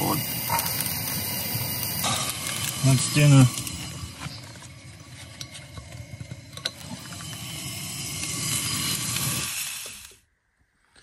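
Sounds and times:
sausages sizzling in a frying pan: 0.0s - 4.5s.

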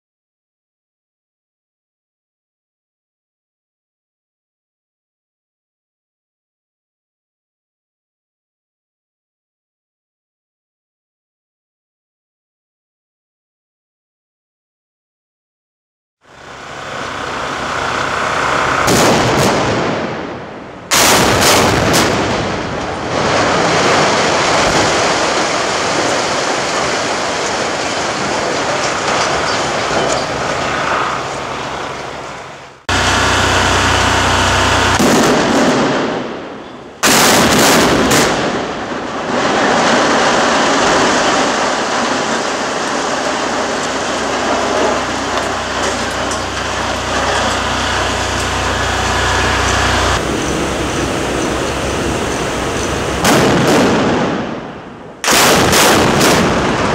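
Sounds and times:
steel structure collapsing: 16.3s - 56.9s
sharp explosive blasts: 17.1s - 32.2s, 32.9s - 56.9s.

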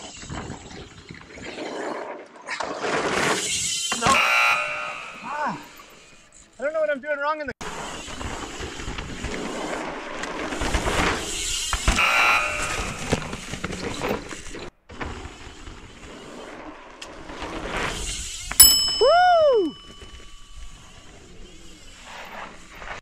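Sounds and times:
bike tyres rolling on dirt: 7.6s - 23.0s.

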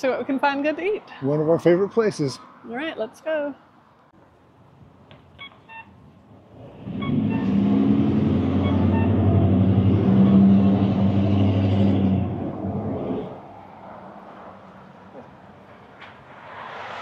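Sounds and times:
vehicle engine passing: 6.5s - 17.0s.

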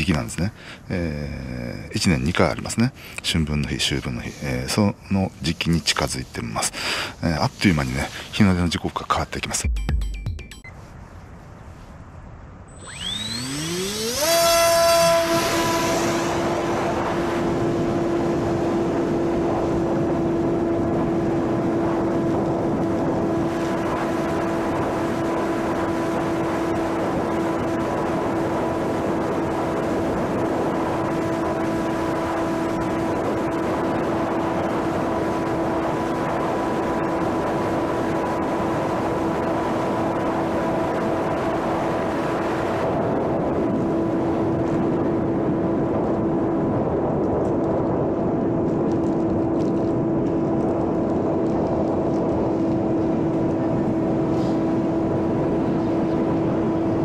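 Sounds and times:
model airplane motor drone: 12.7s - 57.0s.

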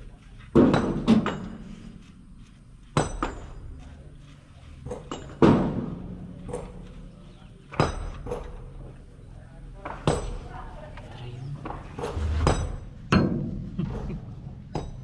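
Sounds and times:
metal tools knocking on engine: 12.4s - 15.0s.

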